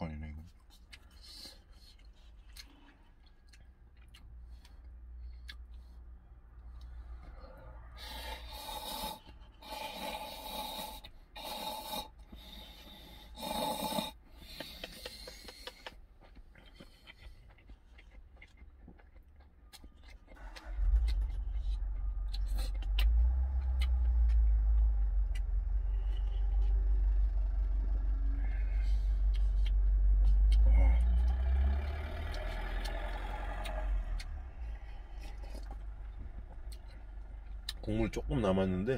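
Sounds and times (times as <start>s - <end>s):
quiet chewing: 0.4s - 38.2s
low engine rumble: 1.2s - 9.7s, 18.8s - 38.9s.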